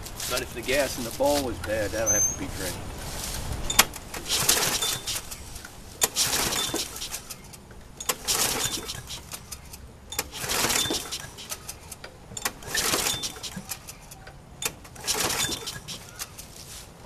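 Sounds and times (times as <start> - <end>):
recoil starter click and whirr: 6.0 - 16.5.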